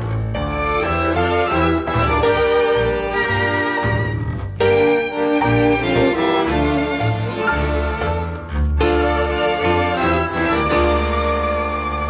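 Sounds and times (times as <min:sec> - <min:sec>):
bandoneons and violins: 0:00.0 - 0:12.0
double bass line: 0:00.0 - 0:12.0.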